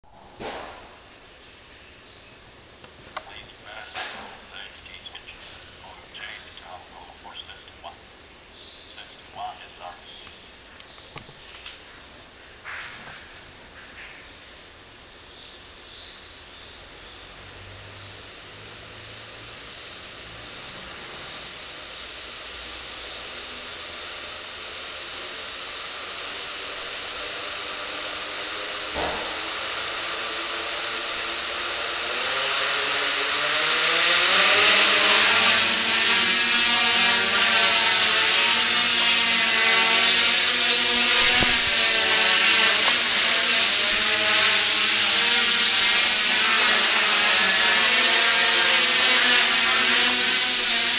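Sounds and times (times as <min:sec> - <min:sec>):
drone rotors buzzing: 0:15.0 - 0:50.9.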